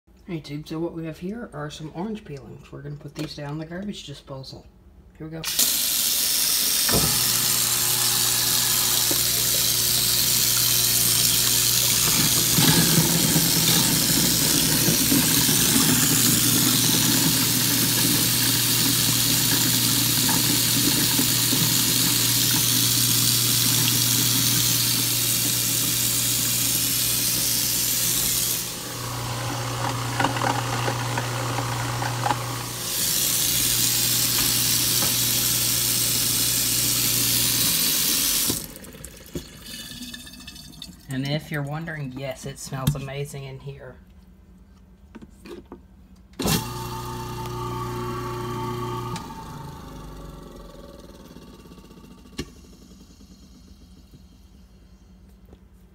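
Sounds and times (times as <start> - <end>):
garbage disposal motor grinding: 5.5 - 41.0, 46.4 - 54.8
tap water rushing: 5.5 - 41.1.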